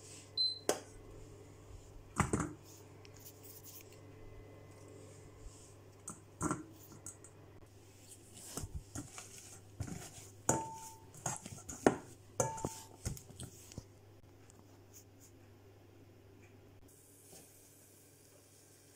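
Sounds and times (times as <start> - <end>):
potato masher clanking on metal bowl: 9.8 - 13.2.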